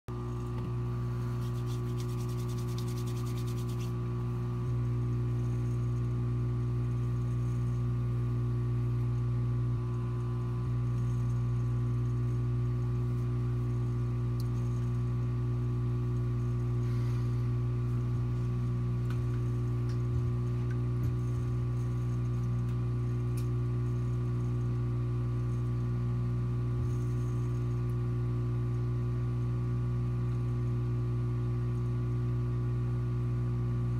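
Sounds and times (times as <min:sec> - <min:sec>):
pump humming: 0:00.1 - 0:33.9.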